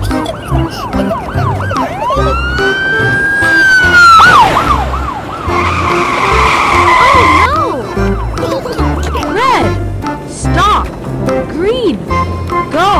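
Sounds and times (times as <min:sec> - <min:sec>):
cartoon police siren wailing: 0:00.0 - 0:09.2.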